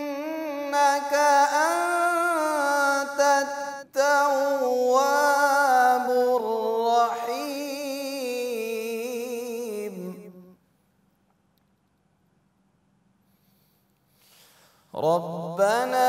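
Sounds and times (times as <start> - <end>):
man chanting: 0.0 - 10.6, 15.0 - 16.0
breath: 13.2 - 15.0.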